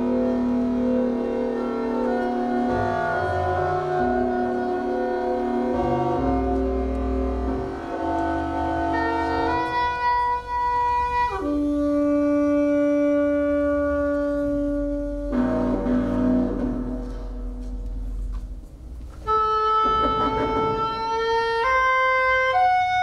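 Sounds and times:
saxophone long notes: 0:00.0 - 0:18.0, 0:19.2 - 0:23.0.

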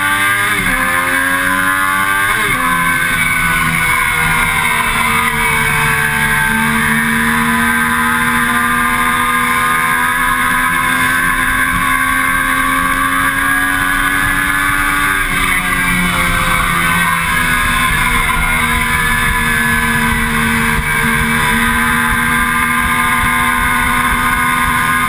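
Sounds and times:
motorcycle engine at high revs: 0:00.0 - 0:25.0.

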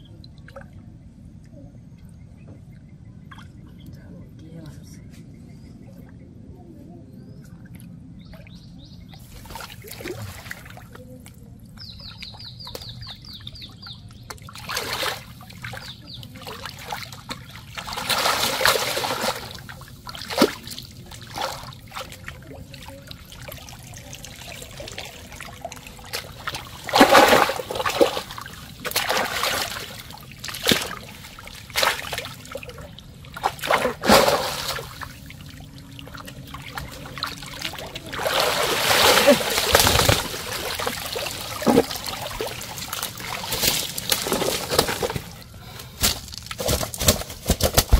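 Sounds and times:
water splashing and trickling: 0:07.6 - 0:47.9
water streaming off net: 0:17.8 - 0:20.8, 0:26.0 - 0:32.6, 0:33.3 - 0:45.3.

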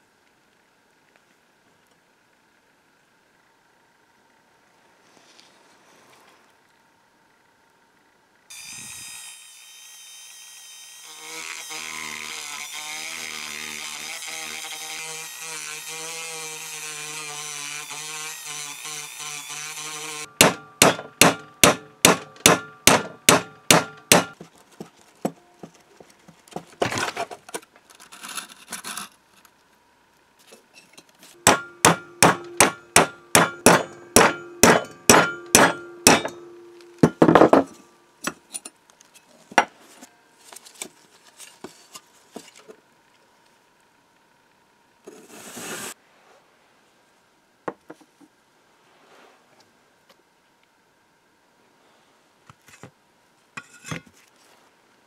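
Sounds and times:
hammer blows on metal: 0:31.4 - 0:37.8.

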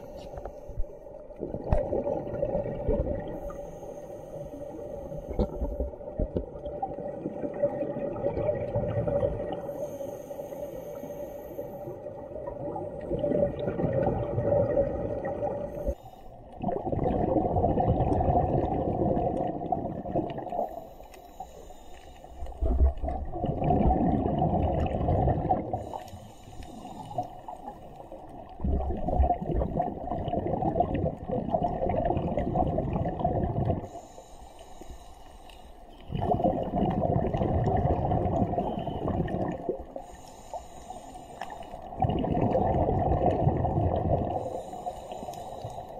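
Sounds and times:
exhaled bubbles burbling underwater: 0:00.8 - 0:03.6, 0:04.7 - 0:09.8, 0:11.9 - 0:20.8, 0:22.4 - 0:26.0, 0:26.8 - 0:33.9, 0:35.9 - 0:40.2, 0:41.4 - 0:44.6.

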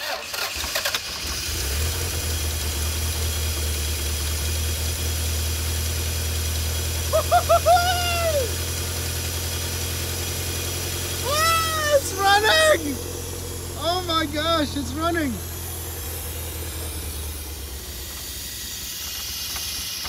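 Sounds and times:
car engine starting and idling: 0:00.0 - 0:20.0
person calling out excitedly: 0:07.1 - 0:08.6, 0:11.2 - 0:15.4.

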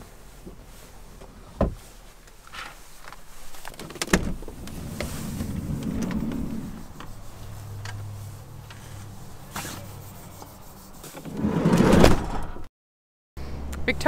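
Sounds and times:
rubbing and handling noise: 0:00.1 - 0:11.7
loud rustling rush: 0:02.8 - 0:11.8.

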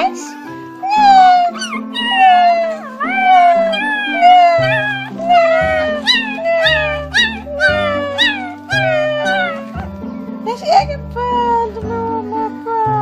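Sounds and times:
background music: 0:00.0 - 0:13.0
puppy howling cries: 0:00.8 - 0:09.9.

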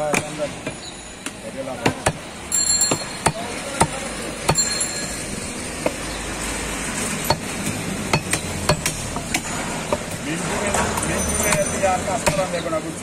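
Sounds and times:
steady background noise: 0:00.0 - 0:13.0
cleaver chopping on wooden block: 0:11.5 - 0:12.6.

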